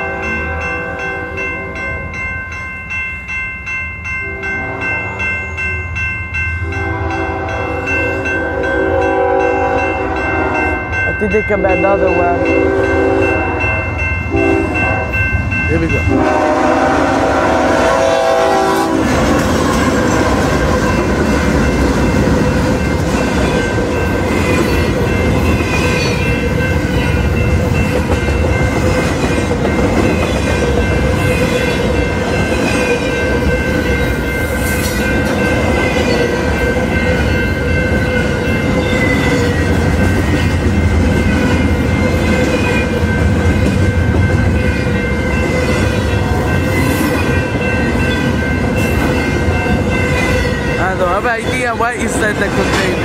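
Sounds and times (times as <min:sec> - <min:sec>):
crossing bell ringing: 0:00.0 - 0:53.0
train wheel and rail noise: 0:00.0 - 0:53.0
locomotive horn: 0:06.6 - 0:10.9, 0:12.2 - 0:15.2, 0:16.0 - 0:19.2.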